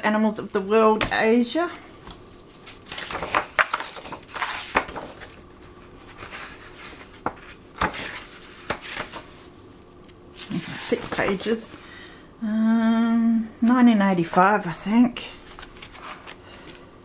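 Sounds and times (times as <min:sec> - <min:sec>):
book pages rustling: 0:02.0 - 0:11.6, 0:15.4 - 0:16.8.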